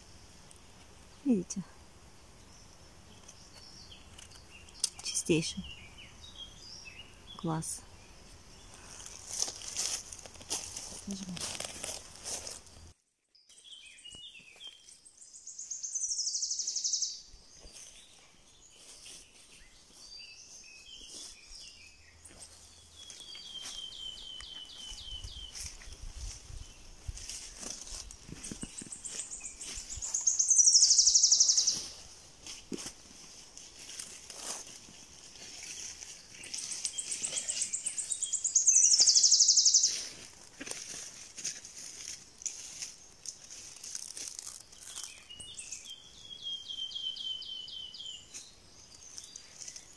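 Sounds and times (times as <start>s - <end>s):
birdsong: 0.0s - 49.9s
leaves rustling: 2.1s - 13.0s, 16.8s - 46.4s, 47.9s - 49.9s
songbird trilling: 3.1s - 8.7s, 15.4s - 17.3s, 28.7s - 32.0s, 36.4s - 40.1s
footsteps in undergrowth: 8.4s - 15.7s, 16.4s - 46.0s, 47.0s - 49.9s.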